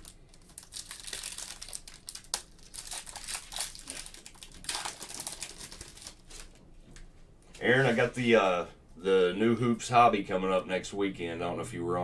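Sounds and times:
plastic wrapper crinkling: 0.0 - 6.7.

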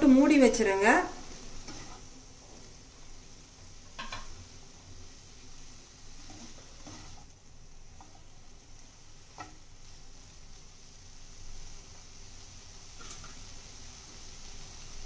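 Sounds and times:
mushrooms sizzling in a frying pan: 0.0 - 15.0
spatula scraping and tapping pan: 1.5 - 2.6, 3.9 - 4.4, 6.2 - 7.3, 7.9 - 8.4, 9.3 - 9.7, 13.0 - 13.4.

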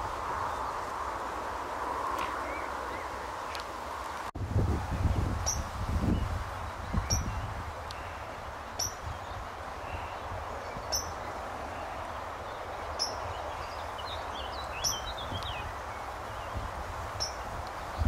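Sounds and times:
bird chirping: 5.4 - 16.6.

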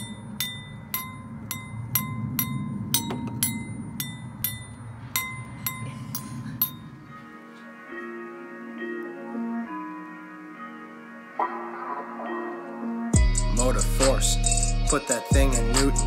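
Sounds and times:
wine glasses struck ringing: 0.0 - 7.1
low steady rumble: 0.0 - 7.2.

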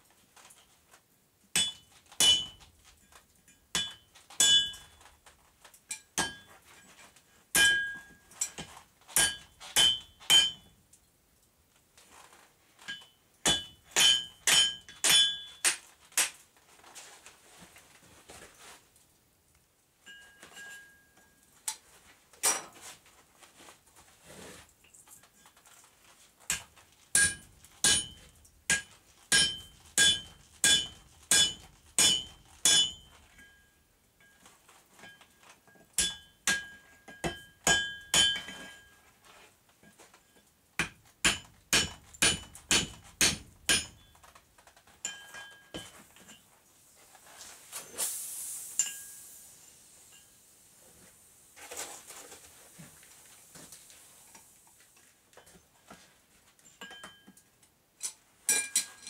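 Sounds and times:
hammer striking metal on anvil: 1.6 - 2.6, 3.7 - 4.9, 7.6 - 8.1, 9.2 - 10.6, 13.4 - 15.8, 27.2 - 33.6, 36.0 - 38.7, 40.8 - 44.1, 48.8 - 49.2.

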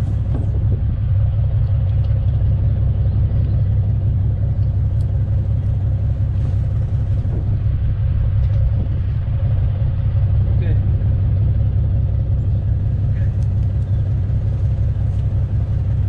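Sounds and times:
boat engine rumbling: 0.0 - 16.0.

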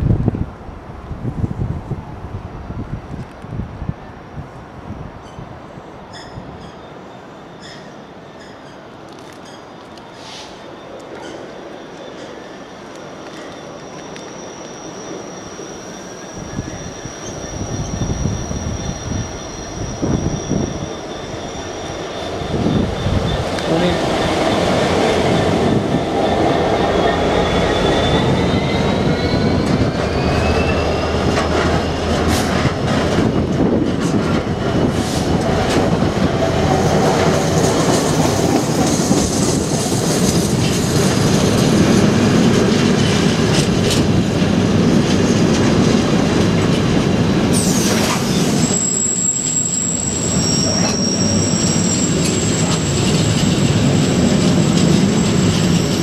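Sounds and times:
high wheel squealing: 6.1 - 33.8, 47.5 - 56.0
train wheels rumbling and clattering: 11.0 - 56.0.

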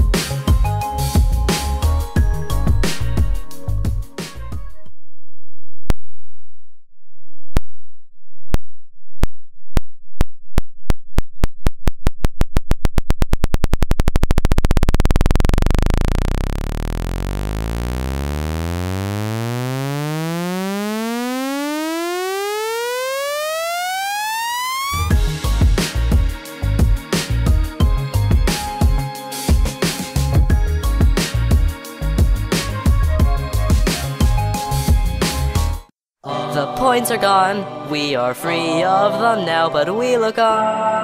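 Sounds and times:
synthesized clicks rising into buzz: 8.5 - 25.1.

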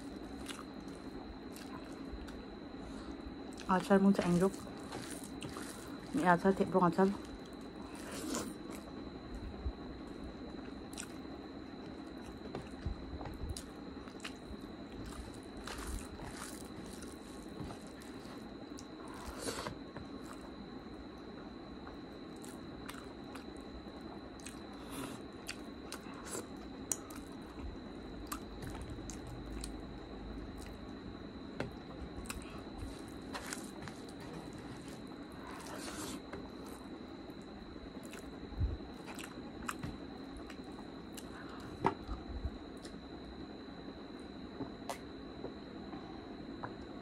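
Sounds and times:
wet chewing and mouth smacks: 10.9 - 11.2, 13.4 - 20.4, 22.4 - 23.5, 24.4 - 27.4, 28.2 - 29.8, 39.0 - 41.4.

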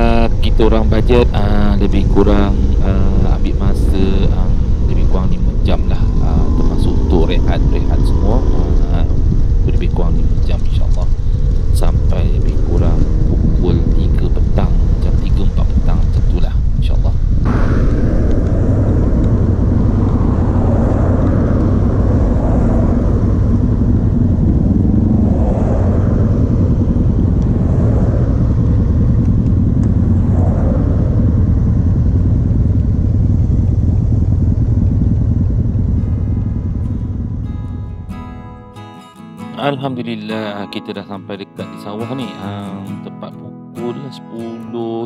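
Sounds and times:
wind rush on camera: 0.0 - 38.1
motorcycle engine running: 0.0 - 38.5.

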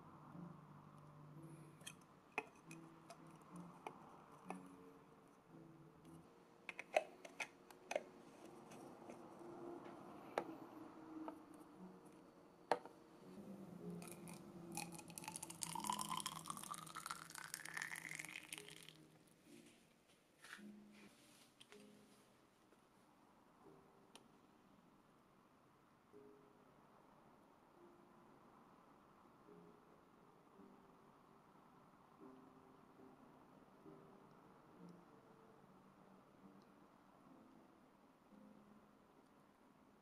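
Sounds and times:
plastic and metal parts clicking: 6.7 - 8.1
water pouring into cylinder: 14.0 - 19.1.

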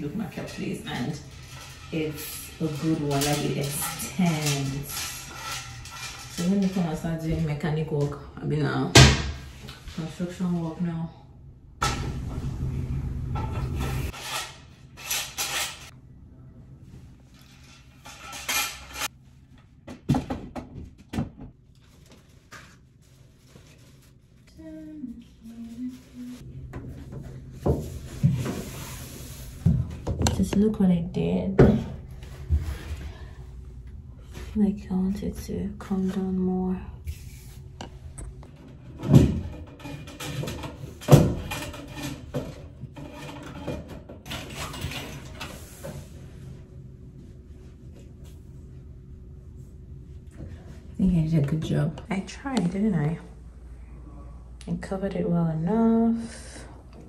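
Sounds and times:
curtain rod scraping slide: 0.1 - 7.2, 13.5 - 15.9, 17.3 - 19.2, 28.1 - 29.7
plastic shower curtain rustling: 21.8 - 26.4.

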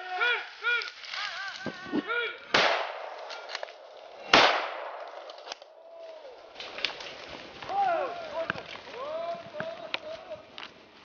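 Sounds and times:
gunshots with echo: 2.5 - 3.3, 4.2 - 5.2.

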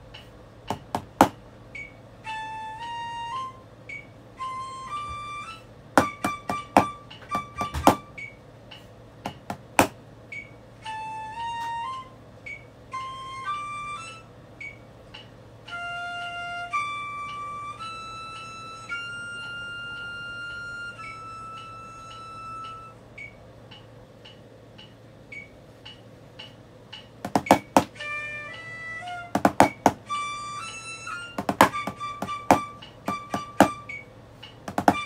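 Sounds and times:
drumsticks tapping practice pad: 0.0 - 1.9, 6.0 - 10.4, 23.7 - 30.3, 31.0 - 35.0
flute melody from phone: 1.8 - 8.4, 10.3 - 14.8, 15.6 - 23.3, 27.5 - 34.1, 34.8 - 35.0.

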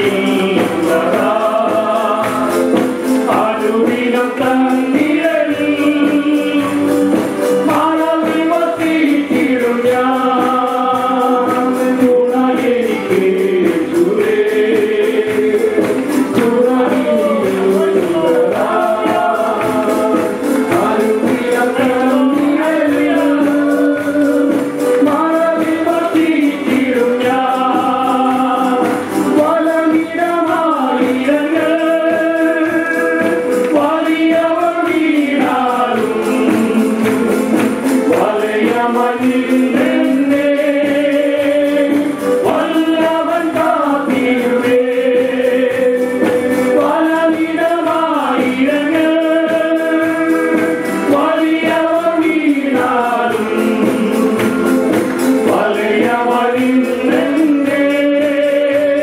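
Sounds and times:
band accompaniment: 0.0 - 59.0
group singing worship song: 0.0 - 59.0.

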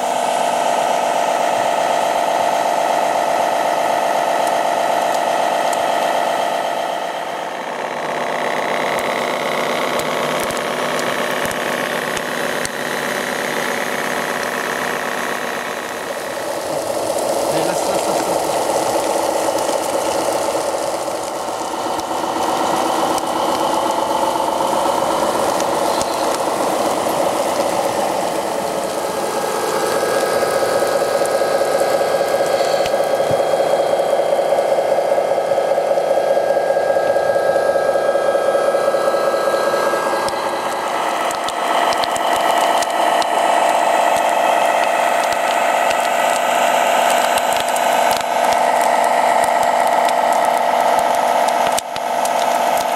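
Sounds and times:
small electric motors whirring: 8.1 - 34.2, 40.1 - 52.9.

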